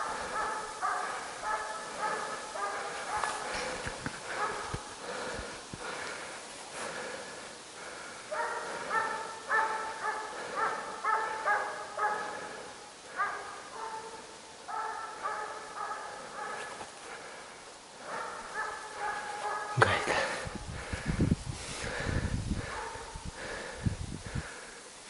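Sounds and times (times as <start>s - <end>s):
hounds baying: 0.0s - 6.2s, 7.8s - 17.4s, 18.0s - 20.4s, 22.6s - 23.2s.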